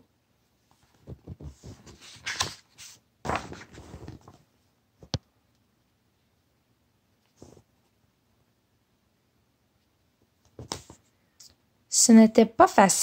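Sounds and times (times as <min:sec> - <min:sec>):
book pages turning: 0:00.7 - 0:04.4.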